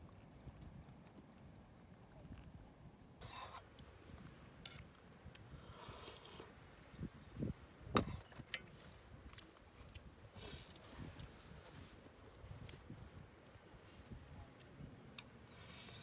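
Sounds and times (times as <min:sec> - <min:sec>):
wind on microphone: 0:05.4 - 0:09.4.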